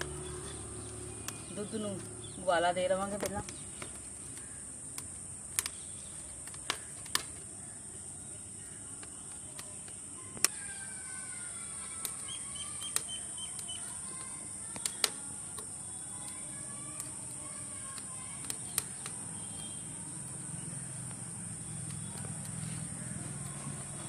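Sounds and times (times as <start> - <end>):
birds calling: 0.0 - 24.0
sharp clicks: 3.0 - 7.5, 11.9 - 23.5.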